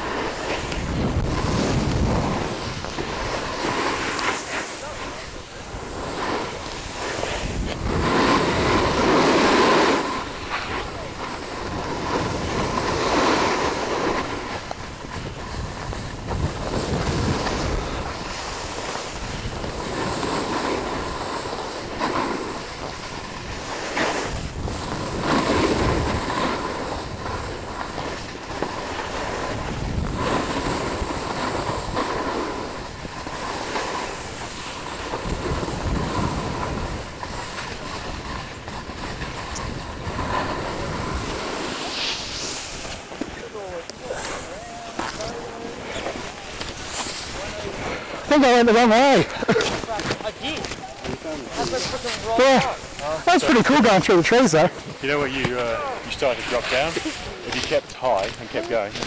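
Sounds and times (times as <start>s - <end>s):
snowboard scraping over snow: 0.0s - 59.0s.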